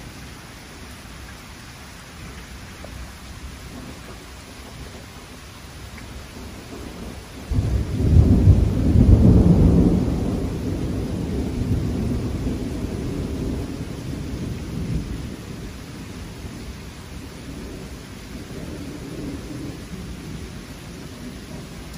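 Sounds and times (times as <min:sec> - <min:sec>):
steady rain: 0:00.0 - 0:21.9
thunder crack and rumble: 0:03.6 - 0:05.1, 0:06.0 - 0:21.9.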